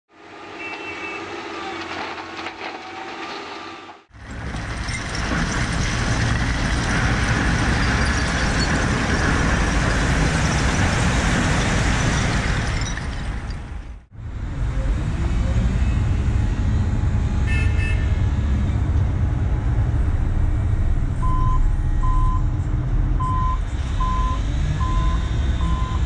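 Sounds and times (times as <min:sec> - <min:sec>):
stones sliding out of truck: 0:01.5 - 0:03.6, 0:04.2 - 0:13.8.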